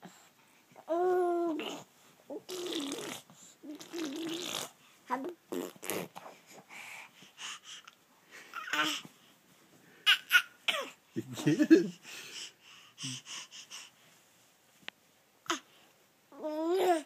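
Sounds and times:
infant babbling and straining: 0.9 - 6.2, 8.5 - 9.1, 16.3 - 17.0.

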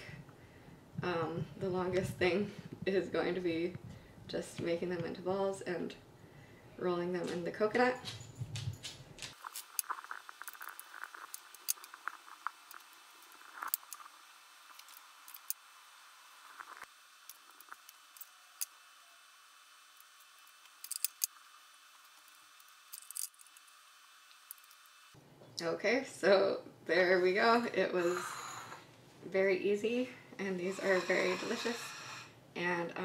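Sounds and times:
small hand-work clicks: 22.2 - 23.7.

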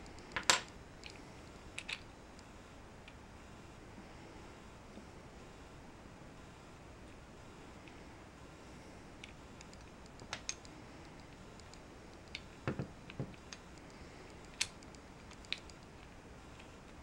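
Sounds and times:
wooden puzzle pieces clicking: 1.8 - 2.1, 14.3 - 16.7.

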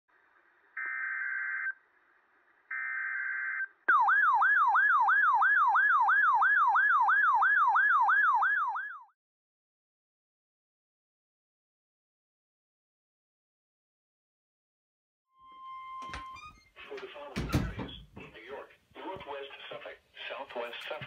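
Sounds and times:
warbling siren tone: 2.8 - 9.1.

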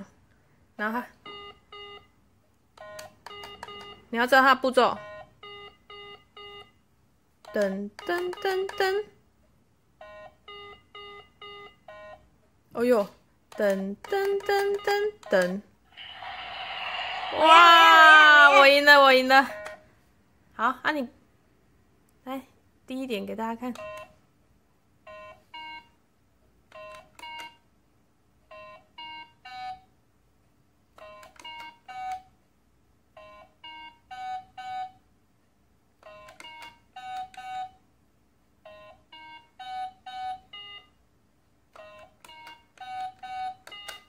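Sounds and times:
electronic toy beeps: 38.7 - 41.0, 41.8 - 44.0.

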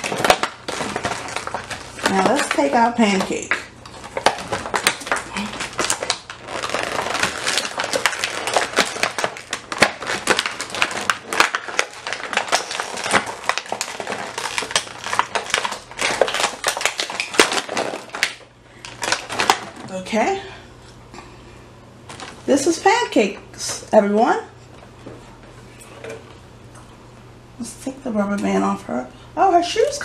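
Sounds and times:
plastic packaging crackling: 0.0 - 20.2, 22.0 - 22.8.

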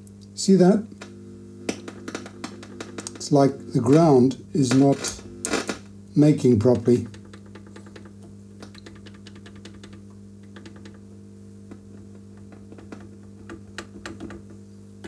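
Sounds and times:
guitar amp humming: 0.0 - 15.0
crackling pops: 0.9 - 6.0.

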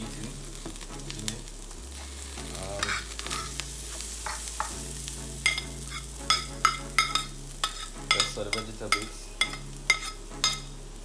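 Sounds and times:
vegetables sizzling in a frying pan: 0.0 - 11.0
utensil clinking on ceramic plate: 6.3 - 10.7.

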